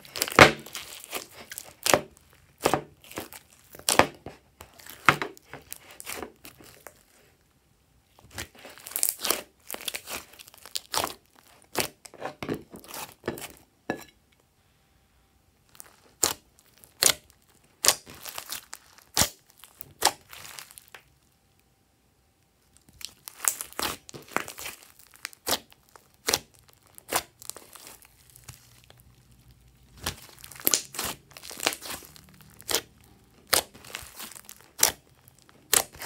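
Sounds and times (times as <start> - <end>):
slime crackling and squishing: 0.0 - 13.7, 15.6 - 21.6, 22.5 - 36.0.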